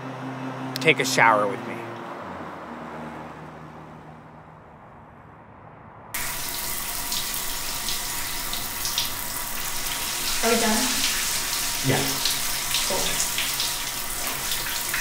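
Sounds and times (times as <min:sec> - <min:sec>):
shower water spraying: 0:06.2 - 0:15.0.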